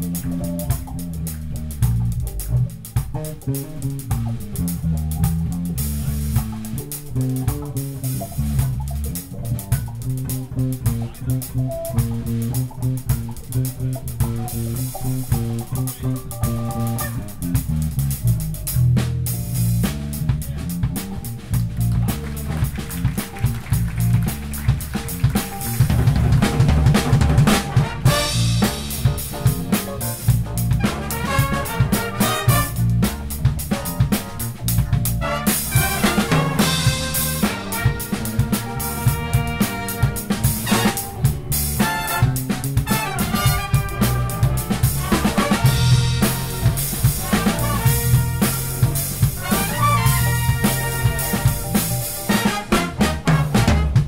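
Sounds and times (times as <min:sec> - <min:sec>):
drum kit groove: 0:00.0 - 0:54.0
electric bass: 0:00.0 - 0:54.0
brass section playing: 0:21.3 - 0:54.0.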